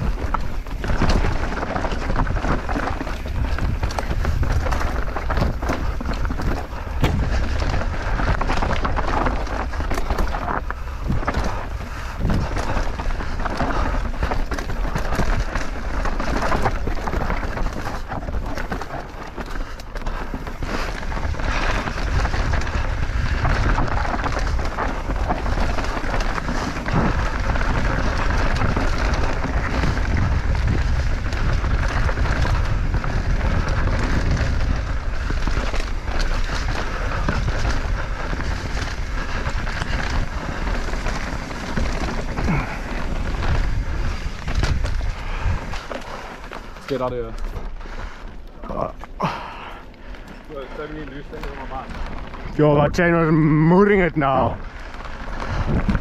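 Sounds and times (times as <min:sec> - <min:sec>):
bike clattering: 0:00.0 - 0:56.0
tyres crunching on dirt: 0:00.0 - 0:56.0
wind buffeting microphone: 0:00.0 - 0:56.0.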